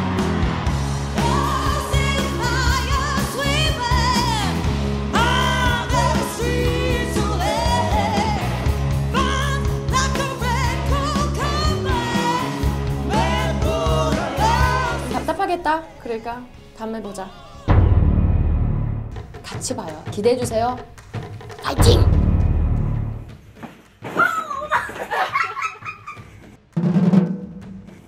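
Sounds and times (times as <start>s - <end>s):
live rock band: 0.0s - 15.3s
woman singing with vibrato: 1.2s - 16.5s.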